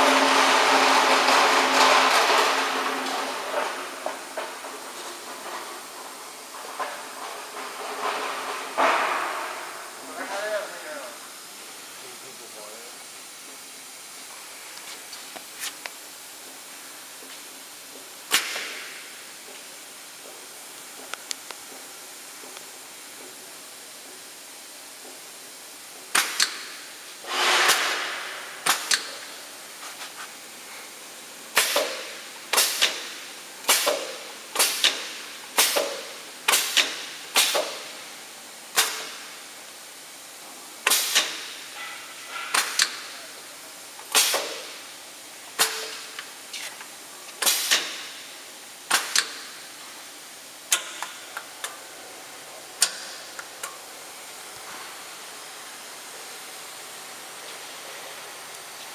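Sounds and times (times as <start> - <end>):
compressed air hiss: 26.1 - 39.8, 40.8 - 43.2, 44.1 - 44.9, 47.4 - 49.6.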